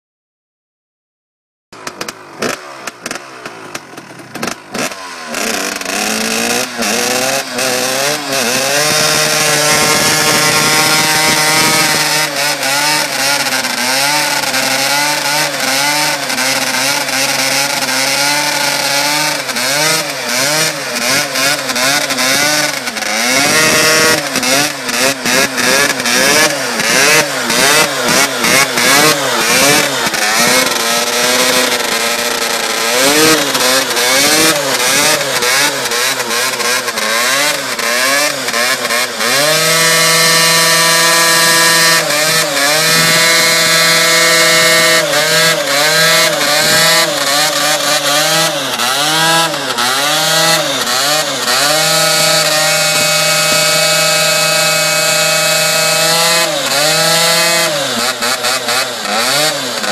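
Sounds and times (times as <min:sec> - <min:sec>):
sharp clatter: 0:01.7 - 0:59.9
dirt bike engine revving: 0:01.8 - 0:59.9.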